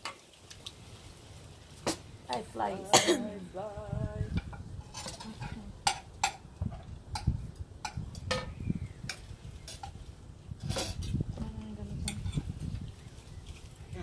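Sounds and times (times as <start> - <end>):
utensils clinking on plates: 4.9 - 6.4.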